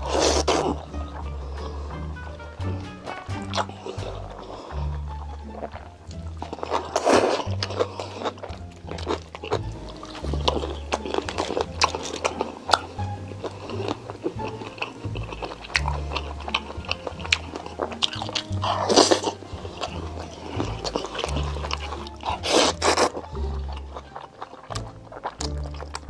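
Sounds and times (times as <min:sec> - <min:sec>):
background music with bass line: 0:00.0 - 0:26.0
noodle slurping: 0:00.0 - 0:26.0
chewing with small clicks: 0:03.1 - 0:26.0.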